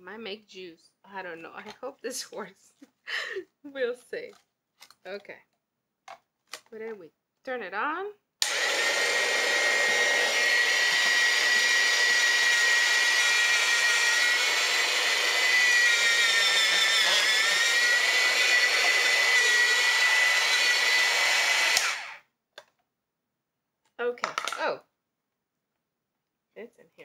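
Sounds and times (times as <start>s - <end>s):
electric shredder motor whining: 8.4s - 22.2s.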